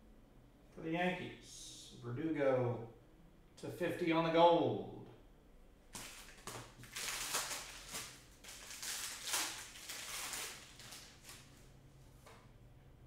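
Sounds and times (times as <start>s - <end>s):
foil wrapper crinkling: 5.9s - 11.7s.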